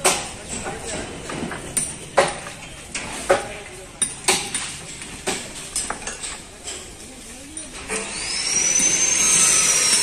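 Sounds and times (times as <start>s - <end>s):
power tool whining: 7.9s - 10.0s.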